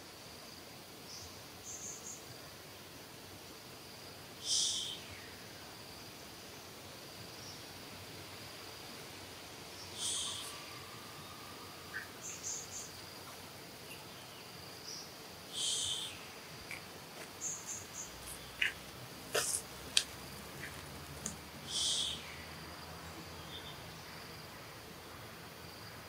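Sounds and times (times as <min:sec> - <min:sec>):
high-pitched insect drone: 0:09.8 - 0:14.1, 0:15.5 - 0:18.8, 0:21.6 - 0:24.4.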